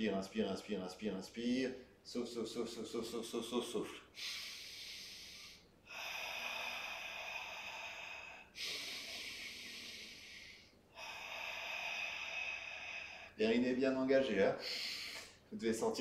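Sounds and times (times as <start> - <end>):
man breathing in and out: 4.0 - 13.6, 14.6 - 15.5.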